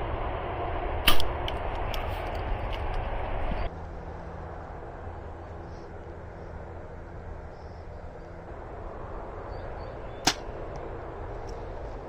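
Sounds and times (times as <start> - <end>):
low outdoor hum: 0.0 - 12.0
bow string snapping: 10.2 - 10.5.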